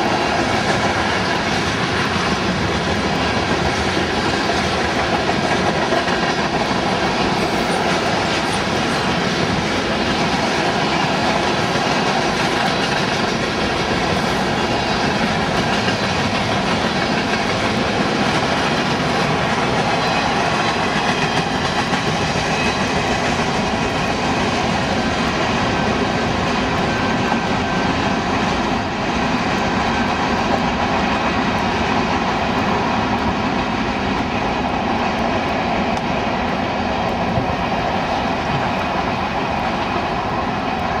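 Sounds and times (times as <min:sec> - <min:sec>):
steel wheels on rails: 0:00.0 - 0:41.0.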